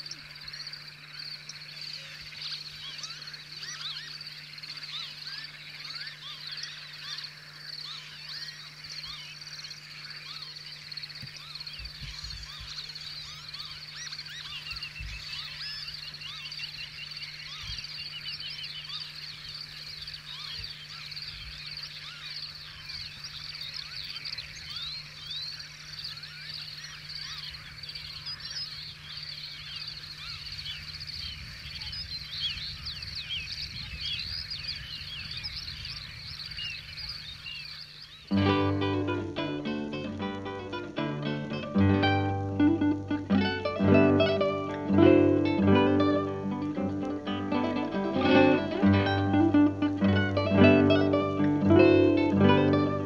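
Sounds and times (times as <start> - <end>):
chorus of chirping calls: 0.0 - 53.0
acoustic guitar music: 38.3 - 53.0.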